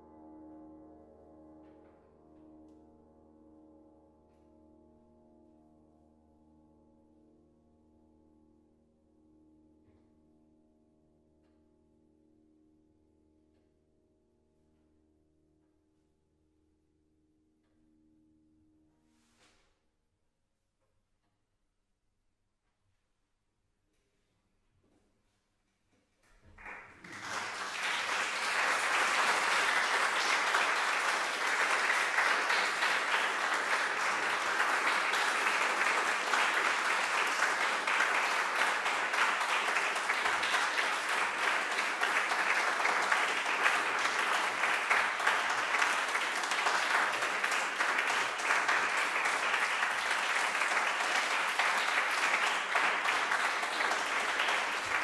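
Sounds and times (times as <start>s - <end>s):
audience applauding: 26.5s - 55.0s.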